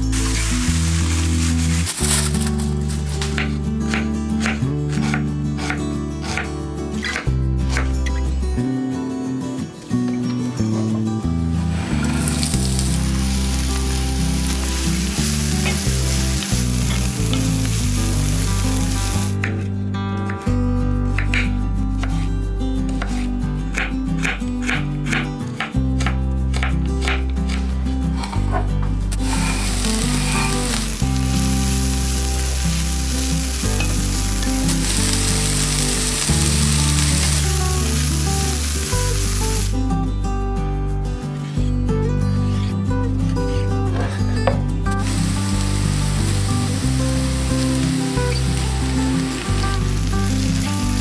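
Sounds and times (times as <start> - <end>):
onions sizzling in pan: 0.0 - 3.2, 11.7 - 19.4, 29.2 - 39.8, 45.0 - 51.0
background music: 0.0 - 51.0.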